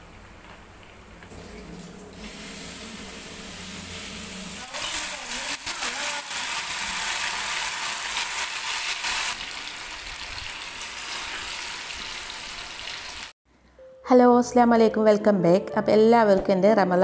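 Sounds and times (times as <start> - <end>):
deep-frying sizzle with crackles: 2.1 - 13.4.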